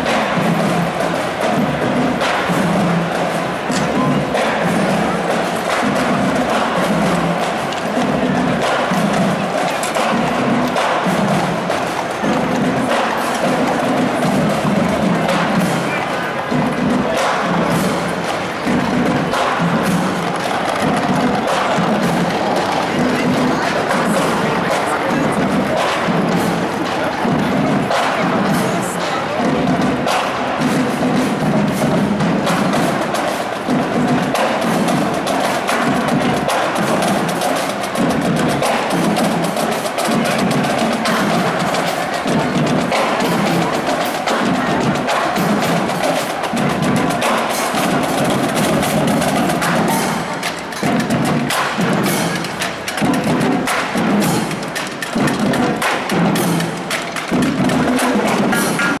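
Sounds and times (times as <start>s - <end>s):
snare drums: 0.0s - 59.0s.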